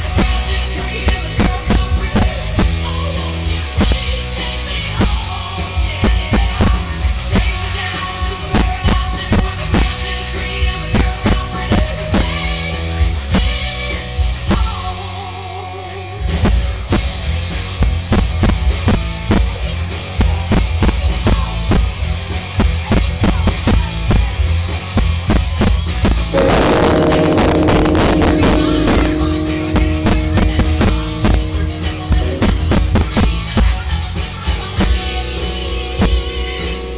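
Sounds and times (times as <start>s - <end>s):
guitar: 0.0s - 36.9s
drum kit beat: 17.9s - 19.4s, 23.2s - 23.8s, 25.3s - 33.8s
rock music: 24.5s - 36.9s.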